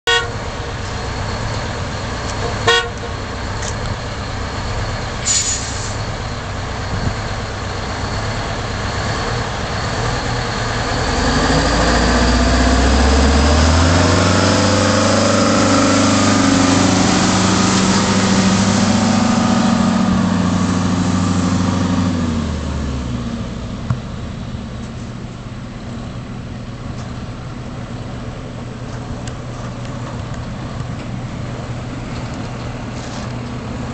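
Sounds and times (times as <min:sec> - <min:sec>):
diesel truck driving past: 0:00.1 - 0:33.9
brief hiss: 0:05.2 - 0:06.0.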